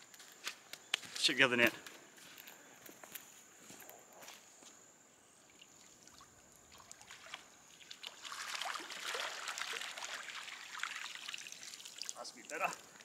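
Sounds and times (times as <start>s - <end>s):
water splashing and dripping: 5.5s - 13.0s.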